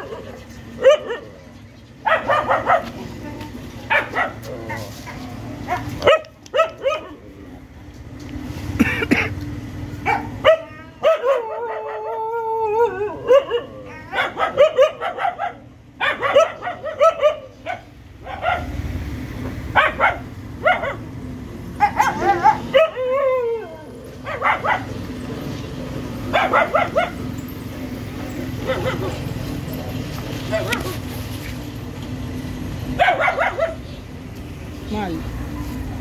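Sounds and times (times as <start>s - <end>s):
puppy drawn-out whine: 10.1s - 14.4s, 21.7s - 25.3s.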